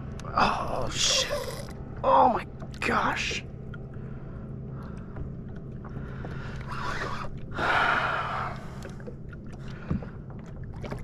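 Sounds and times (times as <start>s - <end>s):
person breathing heavily: 6.1s - 8.9s.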